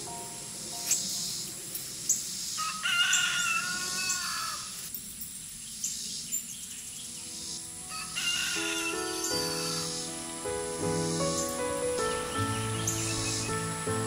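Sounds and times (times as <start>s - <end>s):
harsh bird calls: 0.9s - 4.8s, 5.7s - 14.0s
faint background music: 6.9s - 14.0s.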